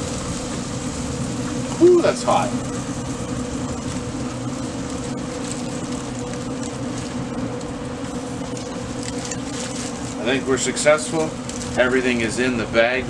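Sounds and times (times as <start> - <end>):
foil and towels rustling: 3.8 - 12.5.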